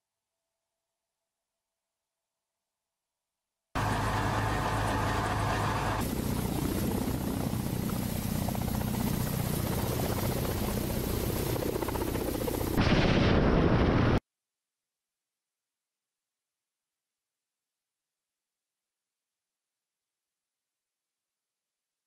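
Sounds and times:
high engine whine: 0:03.8 - 0:12.6
helicopter rotor beat: 0:03.8 - 0:12.8.

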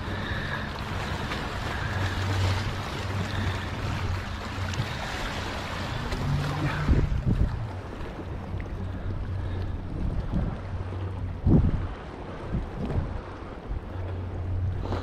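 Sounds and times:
seawater washing over rocks: 0:00.0 - 0:08.6.

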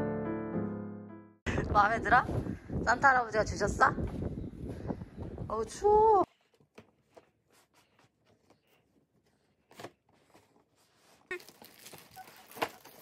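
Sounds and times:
cardboard rustling: 0:06.3 - 0:13.0.

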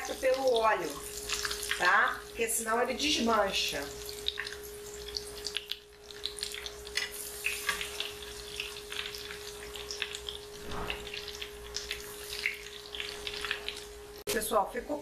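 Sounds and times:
metal utensil turning food in pan: 0:00.0 - 0:02.0, 0:04.0 - 0:13.9
deep-frying sizzle with pops: 0:00.0 - 0:15.0.

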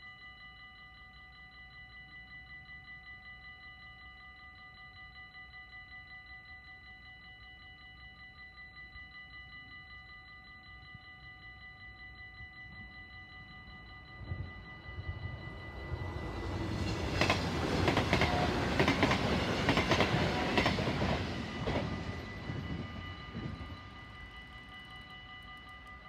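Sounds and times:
level crossing warning bell: 0:00.0 - 0:26.0
electric train passing: 0:12.0 - 0:26.0.

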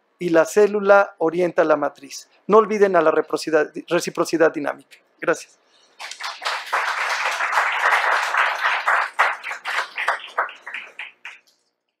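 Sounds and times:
audience applauding: 0:06.0 - 0:11.5.

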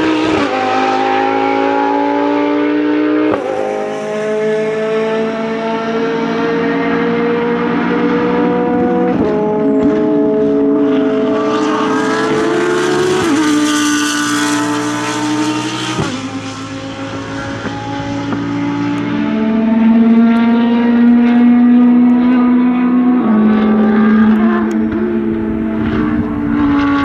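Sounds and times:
race car engine running hard: 0:00.0 - 0:27.0.

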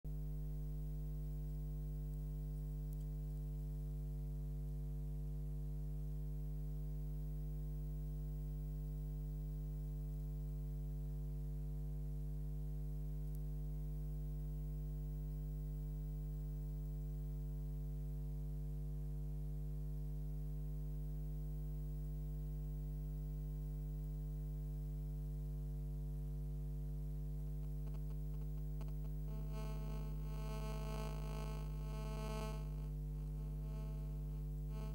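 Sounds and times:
faint crackle: 0:00.1 - 0:04.8, 0:12.6 - 0:14.8, 0:27.0 - 0:34.9
electrical mains hum: 0:00.1 - 0:17.2, 0:20.7 - 0:34.9.

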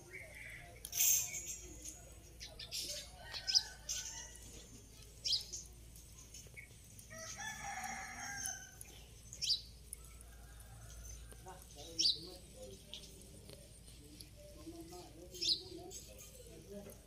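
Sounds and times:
small birds chirping: 0:00.0 - 0:17.0
rooster crowing: 0:07.1 - 0:08.8.

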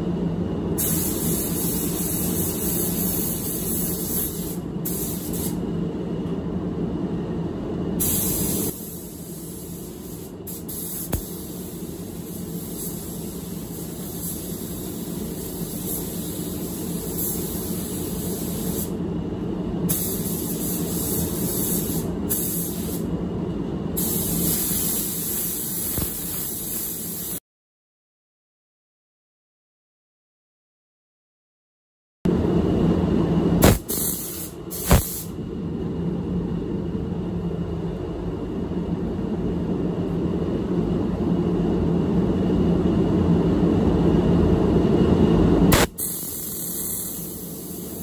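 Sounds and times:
spray gun hissing: 0:00.8 - 0:05.6, 0:08.0 - 0:19.0, 0:19.9 - 0:23.1, 0:24.0 - 0:27.4, 0:33.6 - 0:35.3, 0:45.8 - 0:48.0.

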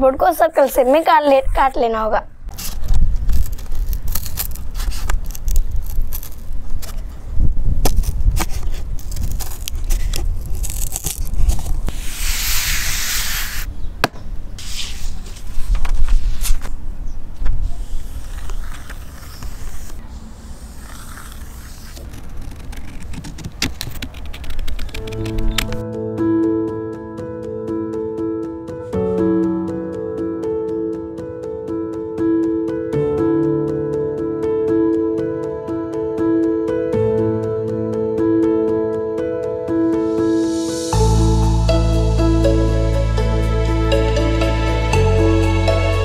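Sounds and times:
scissors cutting cardboard and paper: 0:02.5 - 0:07.1, 0:07.8 - 0:13.7, 0:17.6 - 0:25.8
hiss: 0:11.9 - 0:13.7.

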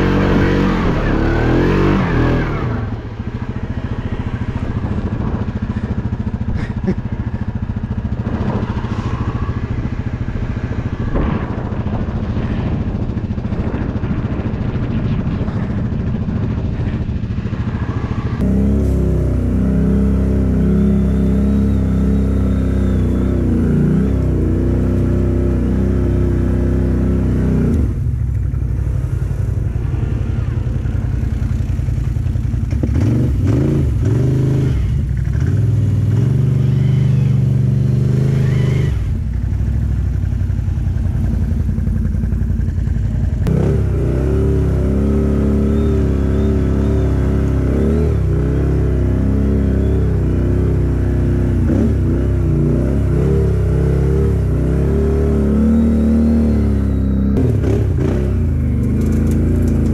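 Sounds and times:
quad bike engine revving: 0:00.0 - 0:28.2, 0:29.9 - 0:59.9.

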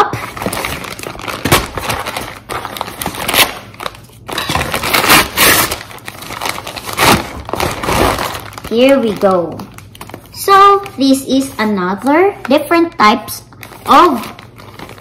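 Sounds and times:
paper ripping: 0:00.1 - 0:11.0
paper crinkling: 0:00.1 - 0:15.0.

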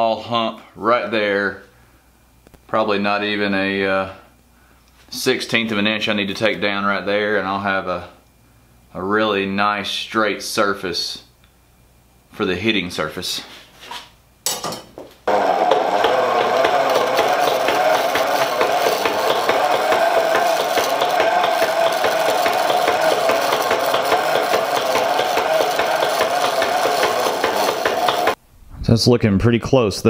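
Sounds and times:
chisel scraping spinning wood: 0:15.3 - 0:28.4.

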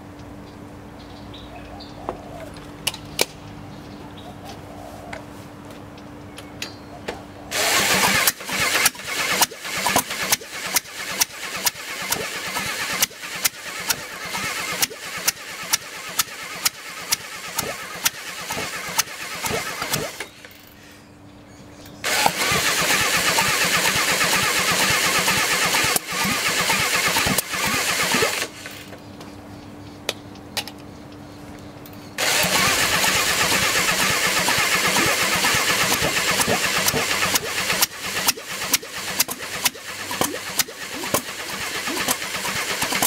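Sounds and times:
power drill cranking an engine: 0:07.5 - 0:20.3, 0:22.0 - 0:29.0, 0:32.2 - 0:43.0.

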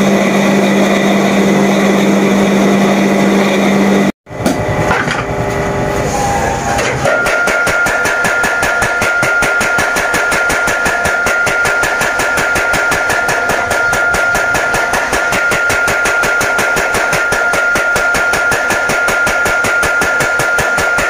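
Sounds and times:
power hammer pounding steel: 0:00.0 - 0:21.0
steady high tone: 0:08.8 - 0:18.3.

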